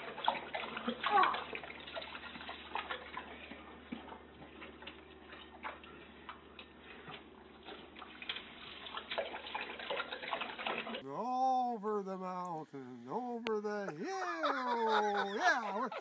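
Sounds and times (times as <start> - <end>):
dog lapping water: 0.0 - 11.0.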